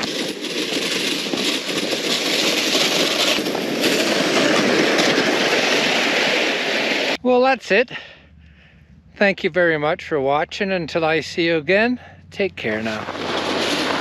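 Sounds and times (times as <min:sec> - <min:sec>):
sled scraping over snow: 0:00.0 - 0:07.2, 0:12.6 - 0:14.0.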